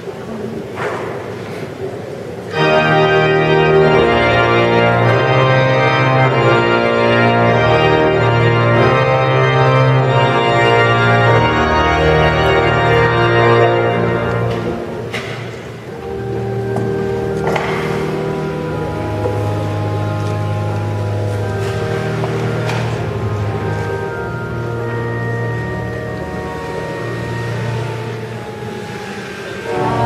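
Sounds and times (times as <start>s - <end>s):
pipe organ chords: 2.5s - 30.0s.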